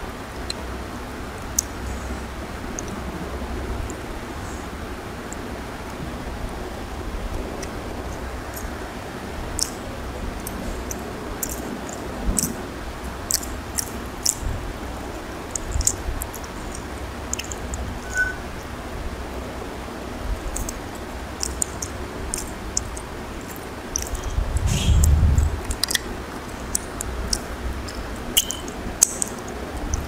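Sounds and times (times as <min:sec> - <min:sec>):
wet eating clicks and smacks: 0:01.4 - 0:01.8, 0:07.3 - 0:18.0, 0:20.3 - 0:30.0.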